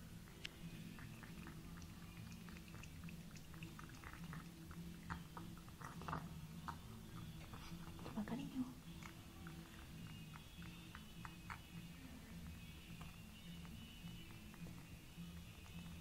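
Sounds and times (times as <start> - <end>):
cat lapping wet food: 0.0 - 16.0.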